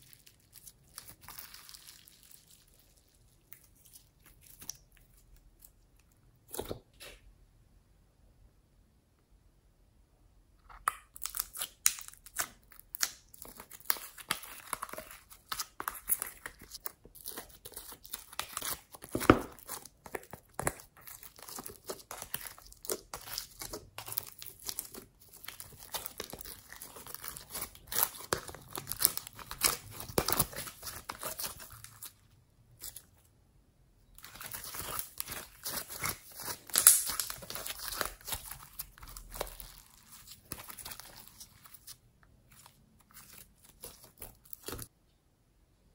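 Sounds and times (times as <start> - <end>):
slime squishing and popping: 10.7 - 32.0, 34.2 - 41.9.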